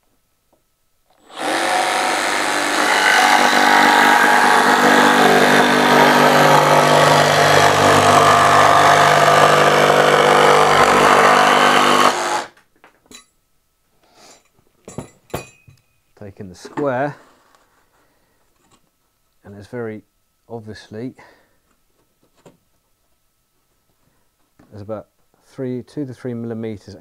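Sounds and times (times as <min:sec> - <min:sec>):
jigsaw cutting wood: 0:01.2 - 0:12.6.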